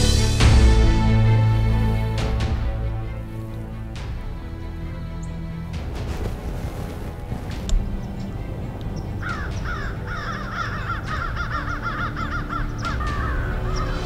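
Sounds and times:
background music: 0.0 - 14.0
birds chattering: 7.6 - 14.0.

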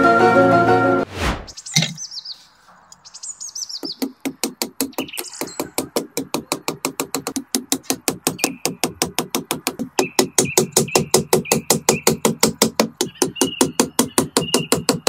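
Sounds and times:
music: 0.0 - 1.1
whoosh: 1.0 - 1.6
bird chirps: 1.5 - 4.2, 4.9 - 5.8, 8.3 - 8.8, 10.0 - 12.3, 13.0 - 15.0
hammer tapping metal stake: 3.8 - 15.0.

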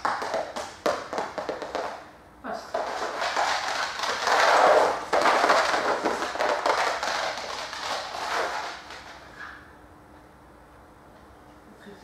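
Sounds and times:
dog claws clicking on hard floor: 2.7 - 9.1.

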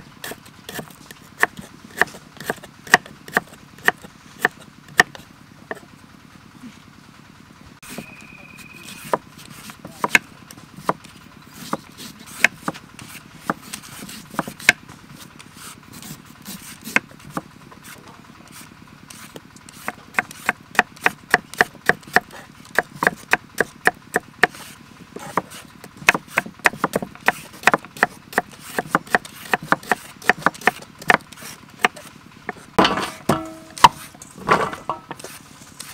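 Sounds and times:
knife chopping on wooden board: 0.2 - 5.8, 9.0 - 10.2, 11.6 - 14.8, 16.0 - 23.7, 24.4 - 34.1.

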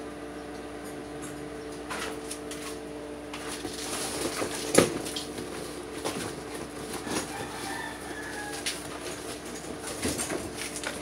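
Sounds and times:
steady low hum: 0.0 - 11.0
packaging rustling and scraping: 3.4 - 11.0.

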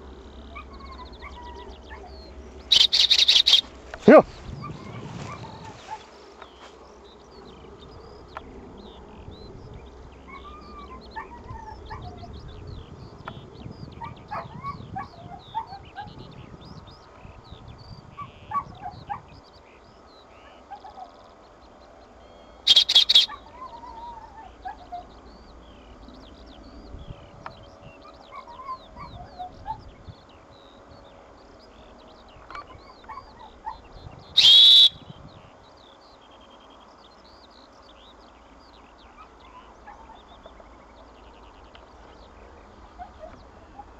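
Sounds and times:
small birds chirping: 0.0 - 43.9
loud high whistle blasts: 34.4 - 35.0.

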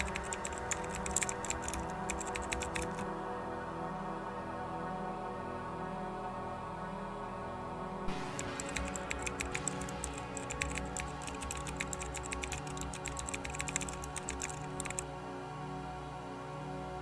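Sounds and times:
computer keyboard typing: 0.0 - 3.0, 8.1 - 15.0
background music: 0.0 - 17.0.

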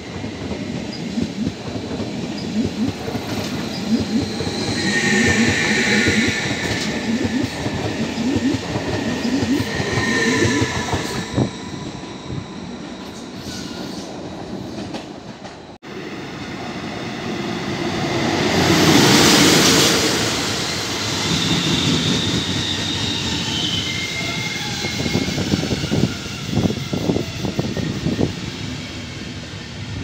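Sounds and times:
electric train rolling in: 0.0 - 30.0
train wheels rushing on rails: 0.0 - 30.0
high wheel squeals: 2.1 - 14.8, 18.6 - 29.1.

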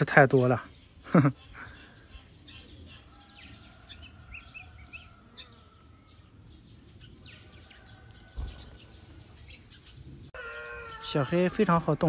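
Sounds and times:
faint outdoor background noise: 0.0 - 12.0
small birds chirping: 0.0 - 12.0
low thump: 8.3 - 8.9.

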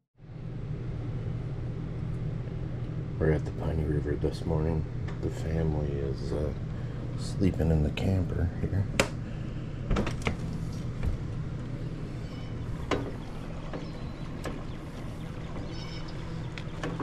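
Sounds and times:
steady low hum: 0.2 - 17.0
door opening: 9.8 - 11.4, 12.4 - 17.0.

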